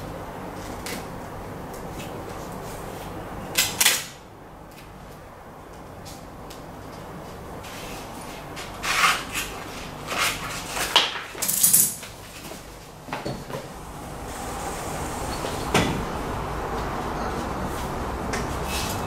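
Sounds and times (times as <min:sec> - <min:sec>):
steady background noise: 0:00.0 - 0:19.0
scrapes and rustles of plastic: 0:07.6 - 0:12.8.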